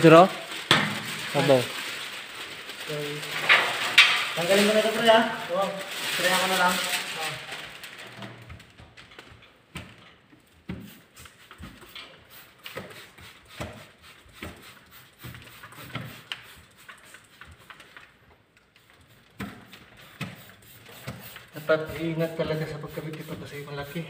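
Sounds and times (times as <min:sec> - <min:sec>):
squeegee strokes on wet glass: 0:10.7 - 0:24.0.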